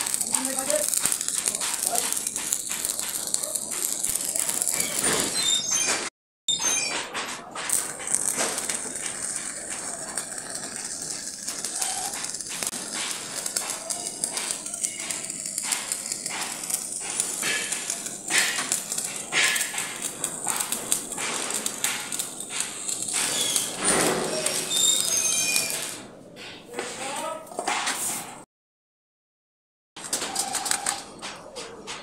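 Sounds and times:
welding arc crackling: 0:00.0 - 0:06.1, 0:07.6 - 0:26.1.

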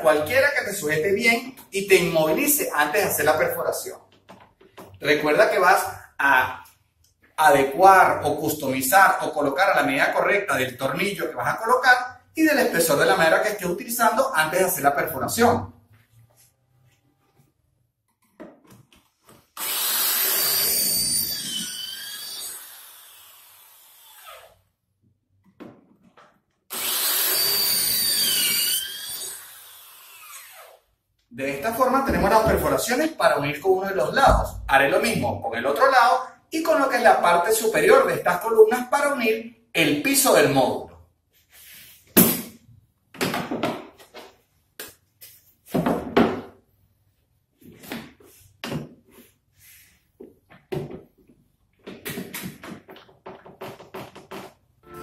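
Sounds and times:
electric drill whining: 0:19.6 - 0:24.6, 0:26.7 - 0:30.8.

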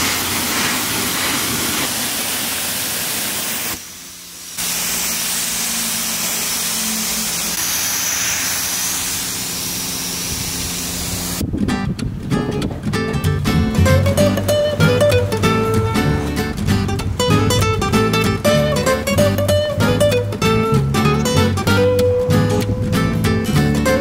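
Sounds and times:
high-pressure water jet spraying car: 0:00.0 - 0:11.4.

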